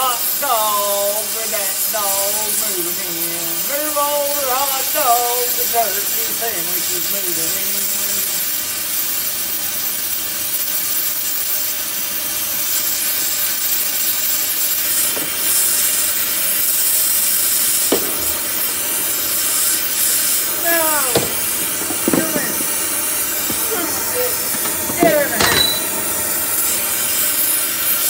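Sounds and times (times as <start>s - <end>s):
gas torch flame hissing: 0.0s - 28.0s
sharp pops: 14.9s - 27.3s
short falling squeal: 24.9s - 26.2s.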